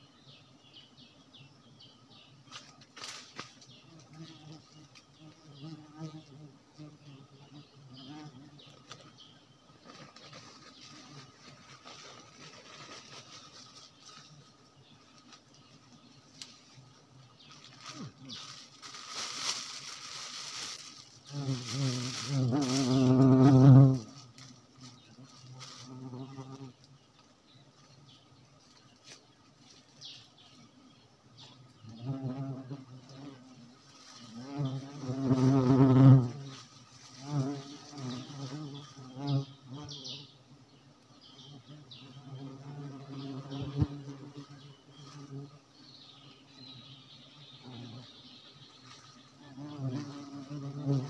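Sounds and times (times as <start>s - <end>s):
leaves rustling: 2.5s - 5.4s, 8.6s - 30.8s, 32.4s - 39.2s, 46.9s - 51.0s
bee buzzing: 2.6s - 9.3s, 20.7s - 26.9s, 31.8s - 40.4s, 41.2s - 46.3s, 46.9s - 51.0s
plastic bag rustling: 9.8s - 14.1s, 17.7s - 23.6s.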